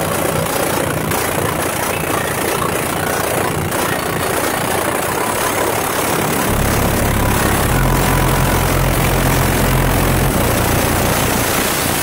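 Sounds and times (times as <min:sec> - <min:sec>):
bass-heavy music from car stereo: 0:06.5 - 0:11.8.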